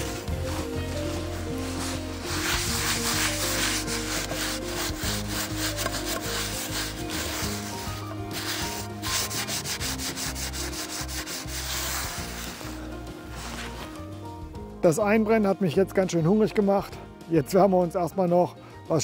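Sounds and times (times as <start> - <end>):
paper scrubbing iron pan with salt: 0.0 - 13.9.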